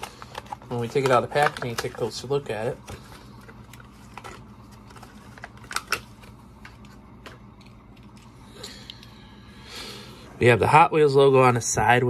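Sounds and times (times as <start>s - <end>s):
blister pack crackling open: 0.0s - 8.4s.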